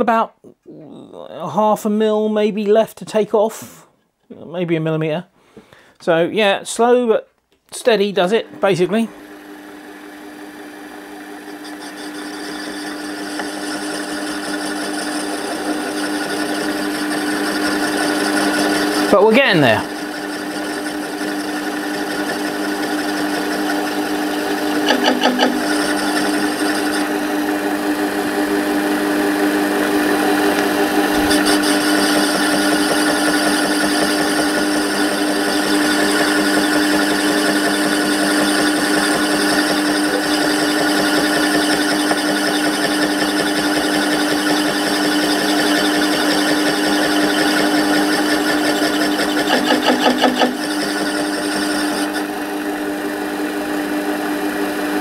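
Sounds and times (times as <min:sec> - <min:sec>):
metal lathe humming: 0:08.4 - 0:55.0
cutter knocking on metal: 0:20.0 - 0:27.0, 0:30.5 - 0:52.3.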